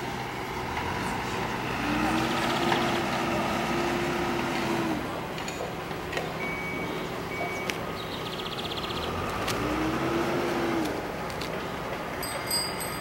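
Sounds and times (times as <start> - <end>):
street background noise: 0.0 - 13.0
vehicle engine hum: 0.0 - 13.0
short high beeps: 6.4 - 7.8.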